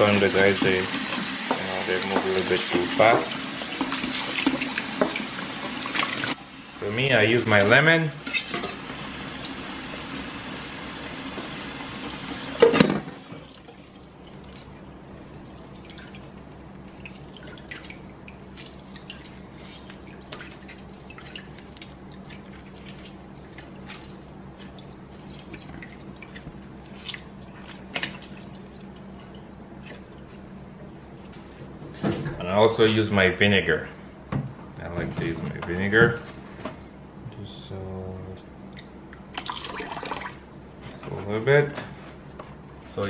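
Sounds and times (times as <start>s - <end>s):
water splashes and drips: 15.4s - 30.6s, 38.8s - 40.4s
wet handling sounds: 15.4s - 31.5s.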